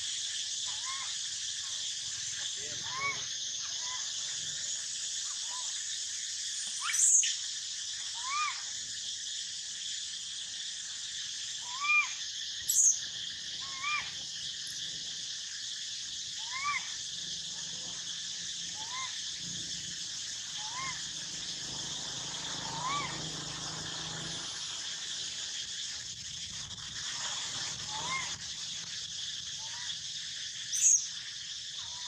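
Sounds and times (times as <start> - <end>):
insects buzzing: 0.0 - 32.0
monkey sharp cries: 0.7 - 1.2, 2.8 - 4.1, 6.8 - 7.3, 8.2 - 8.7, 11.6 - 13.0, 13.6 - 14.2, 16.4 - 17.0, 18.7 - 19.2, 20.5 - 21.2, 22.4 - 23.8, 27.8 - 28.4.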